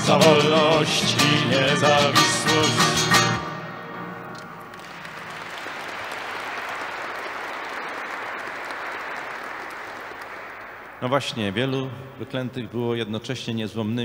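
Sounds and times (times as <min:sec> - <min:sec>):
audience applauding: 0:04.3 - 0:11.5.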